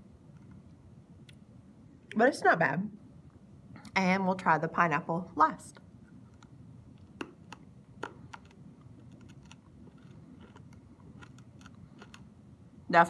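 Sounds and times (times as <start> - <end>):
low room hum: 0.0 - 13.0
hard candy clicking on teeth: 6.4 - 12.3.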